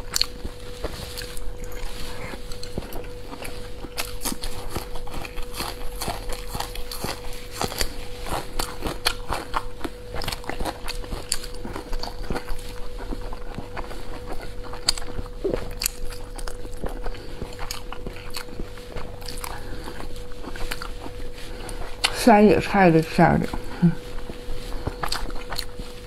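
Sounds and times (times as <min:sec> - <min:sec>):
close-miked chewing: 0:00.0 - 0:26.0
faint steady hum: 0:00.0 - 0:26.0.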